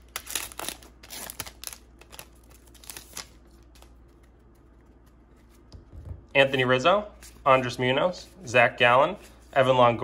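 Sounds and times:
wrapper tearing and crinkling: 0:00.0 - 0:03.9.

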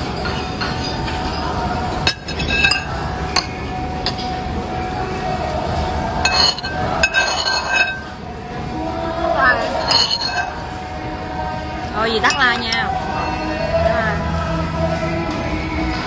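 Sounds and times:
steady background noise: 0:00.0 - 0:16.0
cutlery clinking on ceramic plates: 0:00.1 - 0:04.4, 0:06.2 - 0:08.1, 0:09.7 - 0:10.6.

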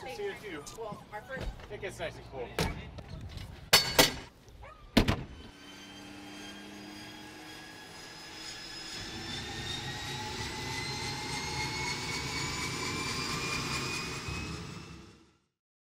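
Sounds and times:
turboprop turbine whine: 0:05.1 - 0:15.6.

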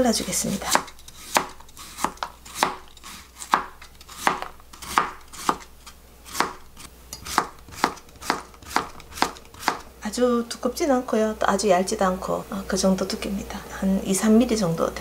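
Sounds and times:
knife slicing cucumber: 0:00.0 - 0:09.9.

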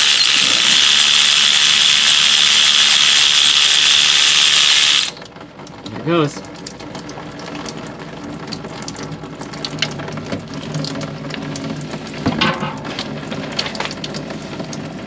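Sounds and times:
coolant splashing into pan: 0:05.1 - 0:15.0.

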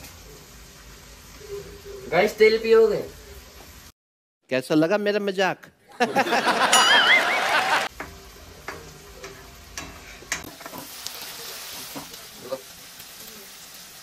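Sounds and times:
vegetables frying in oil: 0:00.0 - 0:03.9, 0:07.9 - 0:14.0.

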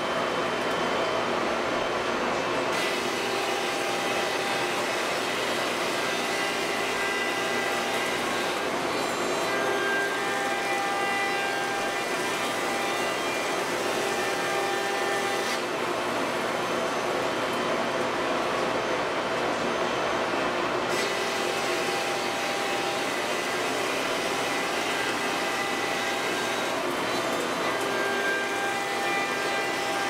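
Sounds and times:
router spindle whine: 0:21.0 - 0:30.0.

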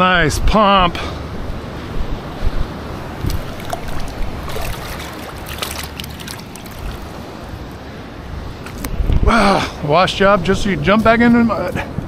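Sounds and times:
wind on microphone: 0:01.4 - 0:07.6
surf: 0:02.9 - 0:07.7
fish splashing in bucket of water: 0:03.2 - 0:07.5.

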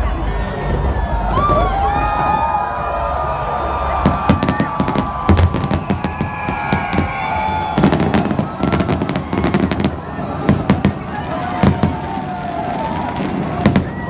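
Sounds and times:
fireworks bangs and crackles: 0:03.8 - 0:14.0.

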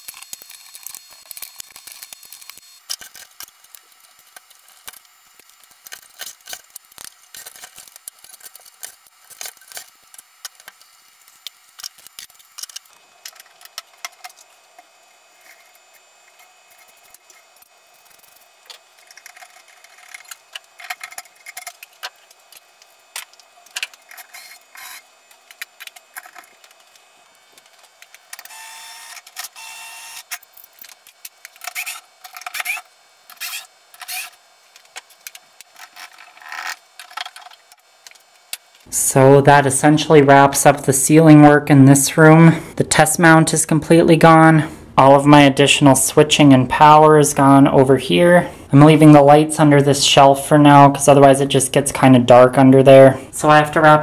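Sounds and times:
cordless drill running: 0:00.0 - 0:30.8, 0:31.4 - 0:34.4.

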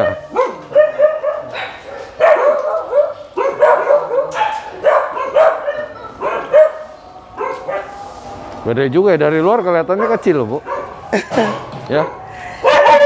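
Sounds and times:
dogs barking: 0:00.0 - 0:08.0, 0:09.8 - 0:13.0.

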